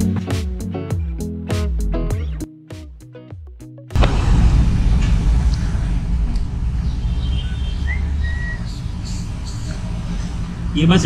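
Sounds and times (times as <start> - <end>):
music: 0.0 - 4.0
road traffic rumble: 3.9 - 11.0.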